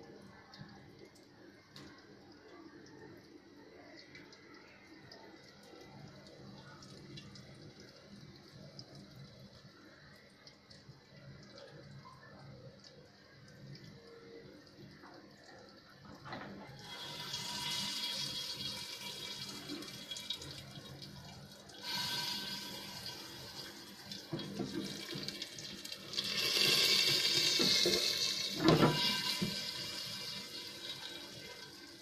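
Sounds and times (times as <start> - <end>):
hot oil sizzling in pan: 16.8 - 20.7, 21.8 - 32.0.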